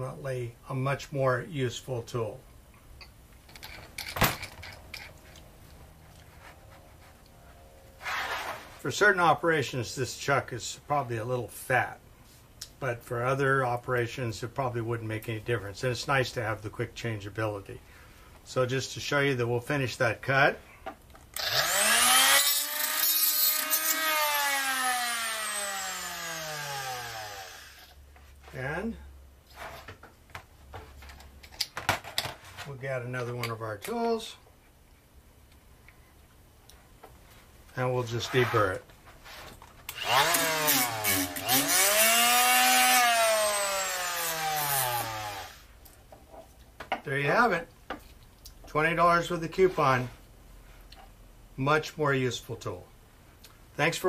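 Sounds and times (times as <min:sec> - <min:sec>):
air cut-off tool grinding metal: 0:21.4 - 0:27.9, 0:39.9 - 0:45.7
tool whine winding down: 0:21.4 - 0:28.0, 0:39.9 - 0:45.6.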